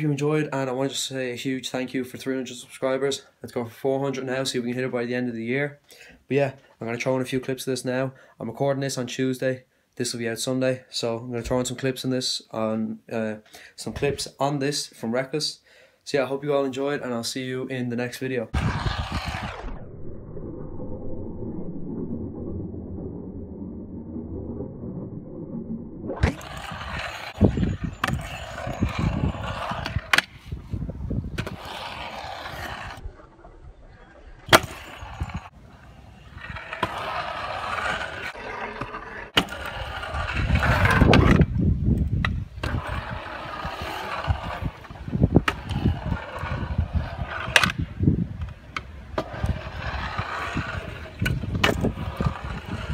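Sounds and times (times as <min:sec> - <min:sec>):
scooter wheels rolling on concrete: 0:18.1 - 0:19.8, 0:26.1 - 0:52.9.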